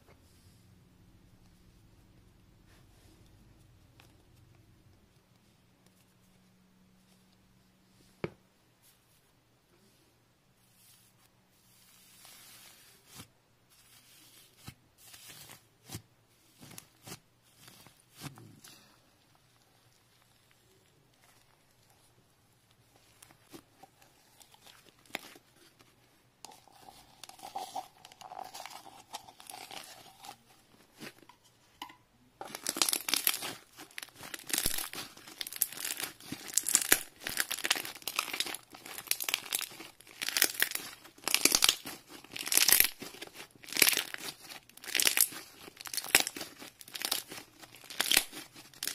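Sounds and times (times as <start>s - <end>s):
slime squishing and crackling: 11.7s - 22.1s, 22.7s - 25.9s, 26.5s - 31.2s, 32.4s - 48.9s.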